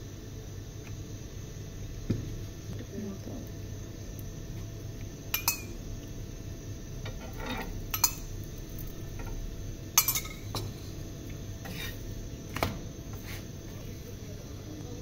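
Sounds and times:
steady low hum: 0.0s - 15.0s
metal utensil scraping cookware: 7.1s - 8.2s, 11.6s - 12.1s.

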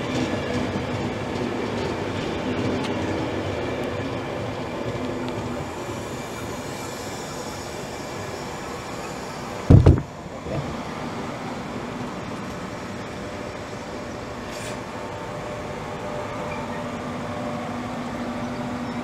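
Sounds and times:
electric train rumbling: 0.0s - 19.0s
loud low thump: 9.7s - 10.1s.

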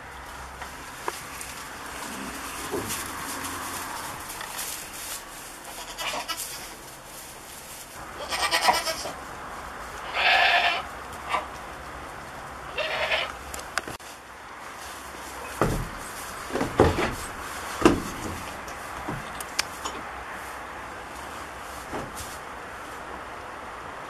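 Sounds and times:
goats bleating: 5.7s - 6.7s, 8.2s - 9.2s, 10.0s - 10.9s, 12.7s - 13.4s
dull thump: 15.6s - 19.3s, 21.9s - 22.3s.

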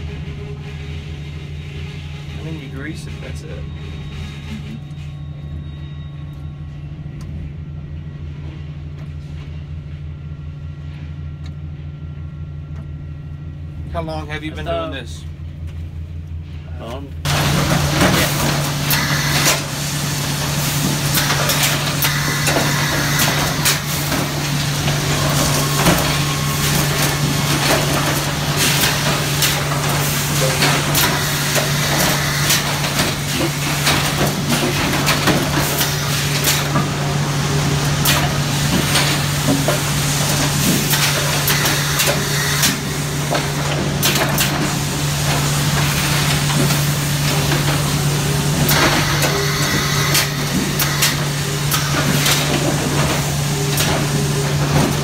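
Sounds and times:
low motor hum: 0.0s - 30.9s.

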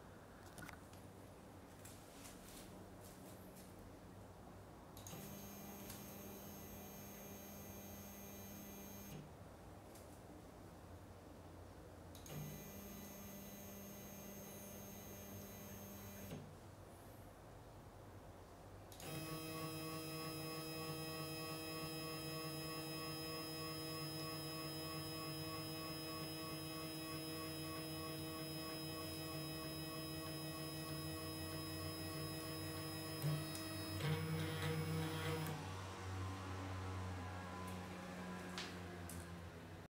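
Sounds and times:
stepper motor humming: 20.3s - 35.6s.

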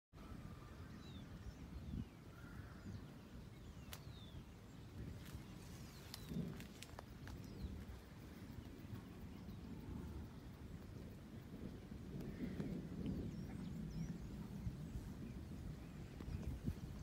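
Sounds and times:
wind rumble on microphone: 0.2s - 17.0s
small birds chirping: 0.3s - 17.0s
sharp ticks: 6.1s - 13.3s.

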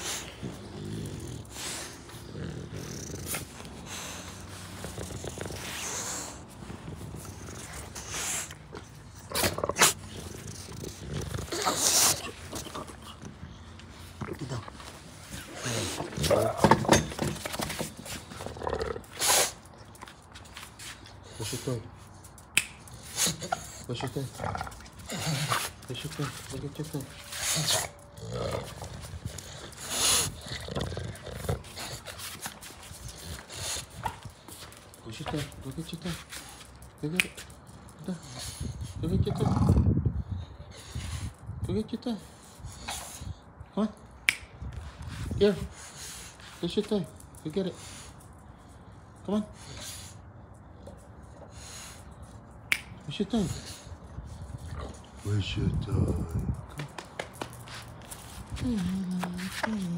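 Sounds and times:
dog grumbling: 0.0s - 13.5s, 14.2s - 17.2s, 18.3s - 19.5s, 23.1s - 32.2s
dogs grunting and snuffling: 0.0s - 59.9s.

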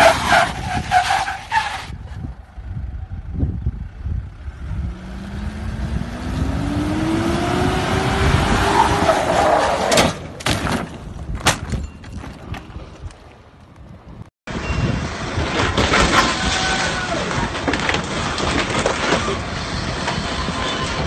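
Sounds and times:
car roof creaking and cracking: 17.3s - 19.6s.

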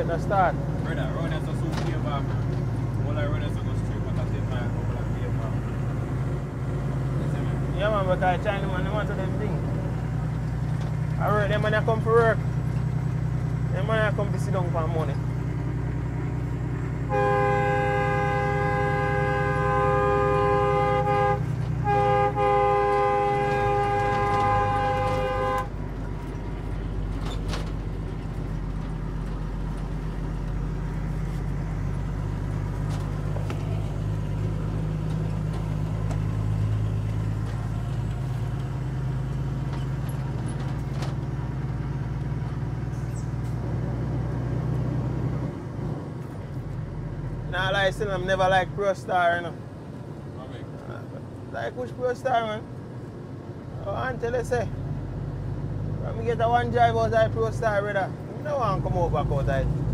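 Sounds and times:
diesel engine droning: 0.0s - 59.9s
truck horn blasts: 17.0s - 25.9s.

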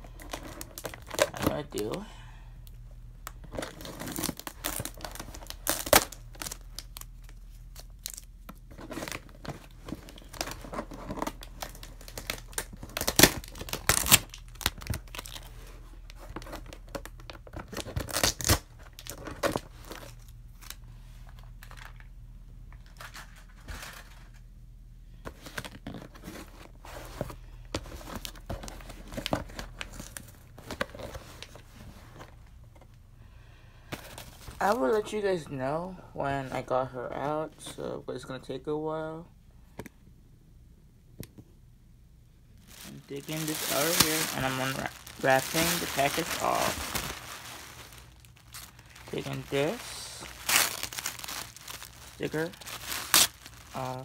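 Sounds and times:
cardboard box tearing and crinkling: 3.6s - 6.6s, 8.8s - 15.5s, 17.6s - 20.1s, 42.7s - 54.0s.

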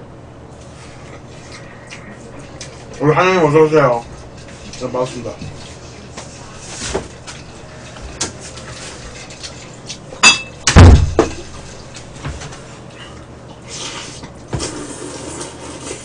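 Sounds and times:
heavy thump on table: 10.7s - 11.3s.

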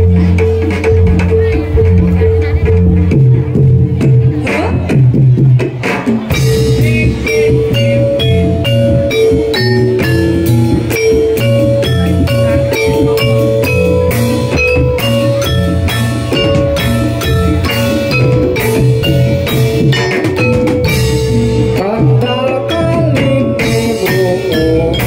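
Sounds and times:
low bass line: 0.0s - 5.7s, 6.3s - 25.0s
drums: 0.0s - 25.0s
metallophones ringing: 6.3s - 25.0s.

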